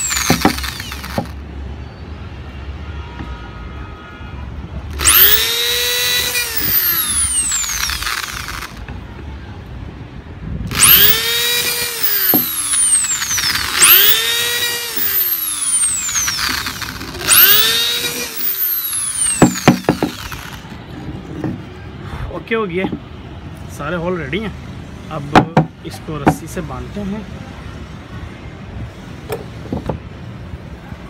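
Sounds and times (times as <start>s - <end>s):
electric drill whining: 0.0s - 1.4s, 4.9s - 8.8s, 10.7s - 20.8s.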